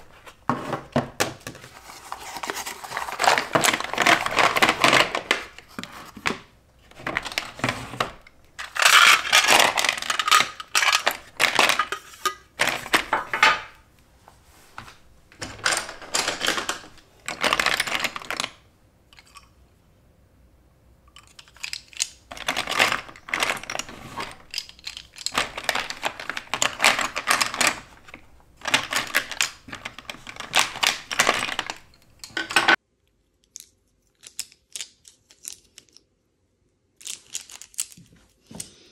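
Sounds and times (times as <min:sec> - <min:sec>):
crayons and pencils rattling: 0:00.0 - 0:13.7, 0:15.4 - 0:19.4, 0:21.1 - 0:32.8.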